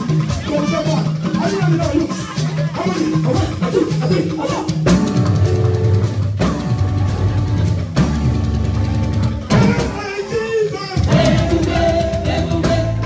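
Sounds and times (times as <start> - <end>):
live band with drum kit: 0.0 - 13.0
person singing: 9.5 - 13.0.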